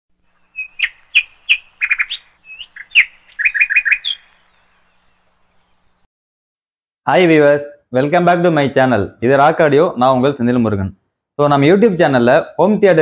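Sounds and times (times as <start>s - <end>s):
high bird-like chirps: 0.3s - 6.0s.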